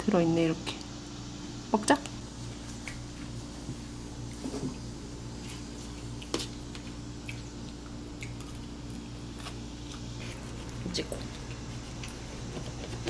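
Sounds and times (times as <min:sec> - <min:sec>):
steady low hum: 0:00.0 - 0:13.0
chewing and biting food: 0:05.4 - 0:13.0.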